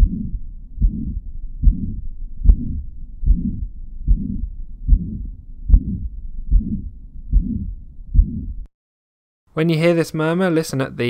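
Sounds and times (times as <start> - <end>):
heartbeat: 0.0 - 8.7
rushing heart murmur: 0.0 - 8.7.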